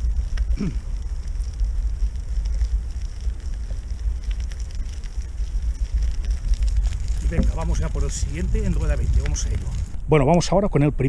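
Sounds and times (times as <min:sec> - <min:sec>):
wind buffeting microphone: 0:00.0 - 0:10.5.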